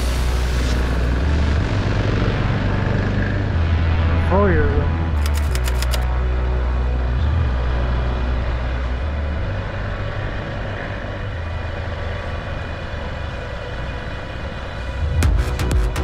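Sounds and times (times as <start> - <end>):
road noise: 0.0 - 16.0
motorcycle engine running: 5.2 - 6.3.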